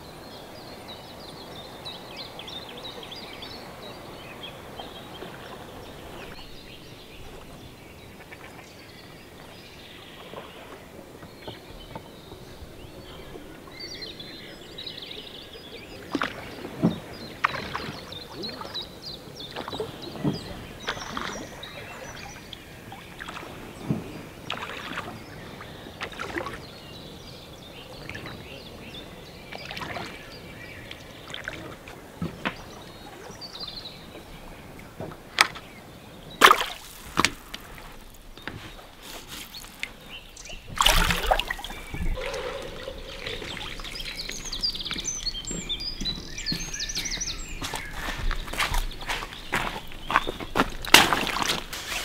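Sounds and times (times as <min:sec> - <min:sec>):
birds singing: 0:00.0 - 0:52.0
water splashes: 0:00.0 - 0:52.0
oar strokes: 0:15.8 - 0:27.2, 0:28.0 - 0:52.0
boat knocking against pier: 0:40.6 - 0:47.3.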